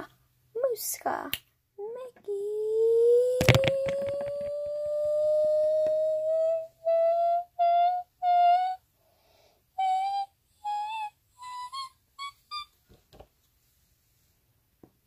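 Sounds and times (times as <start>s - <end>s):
child singing: 2.0s - 8.8s.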